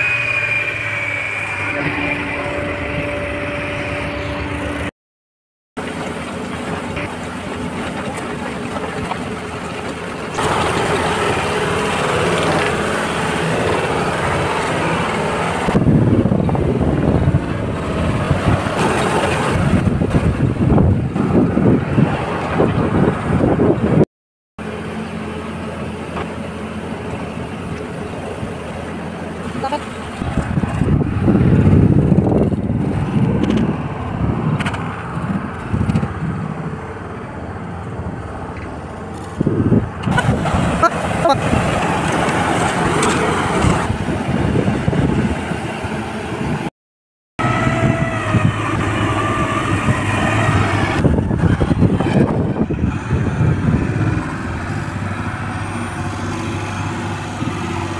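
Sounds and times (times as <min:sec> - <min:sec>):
diesel engine running: 0:00.0 - 0:04.9, 0:05.8 - 0:24.0, 0:24.6 - 0:46.7, 0:47.4 - 0:57.9
wind buffeting microphone: 0:10.4 - 0:24.0, 0:30.2 - 0:46.7, 0:47.4 - 0:57.9.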